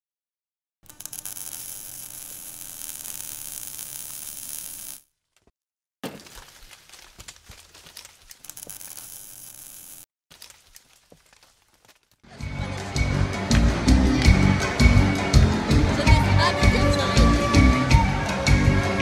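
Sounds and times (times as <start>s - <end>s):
scattered crackles and clicks: 0.8s - 5.5s, 6.3s - 12.2s
crackling hiss: 0.9s - 5.0s.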